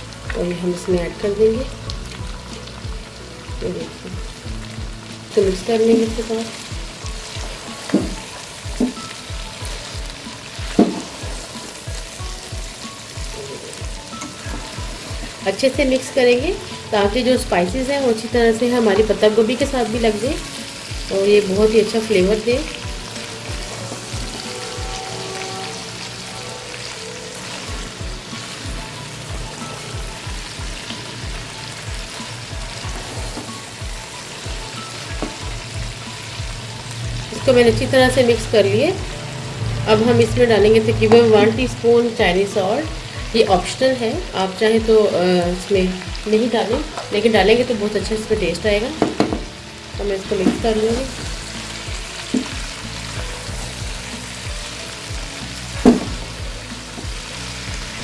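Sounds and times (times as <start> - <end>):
background music with low beat: 0.0 - 58.0
cabbage sizzling in hot oil: 0.0 - 58.0
wooden spoon knocking on pot: 7.9 - 9.0, 10.6 - 11.2, 35.2 - 35.6, 49.0 - 49.5, 52.3 - 52.6, 55.8 - 56.3.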